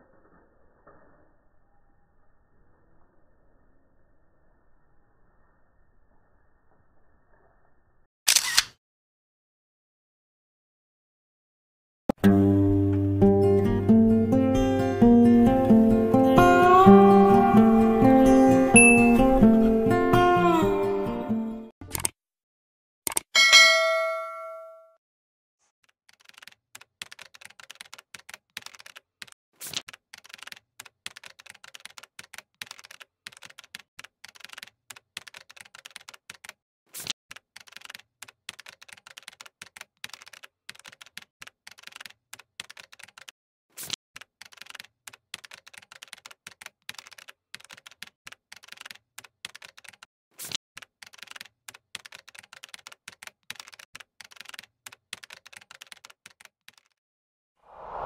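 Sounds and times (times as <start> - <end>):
keyboard typing clicks: 37.3 - 43.3, 44.2 - 50.1, 50.8 - 57.0.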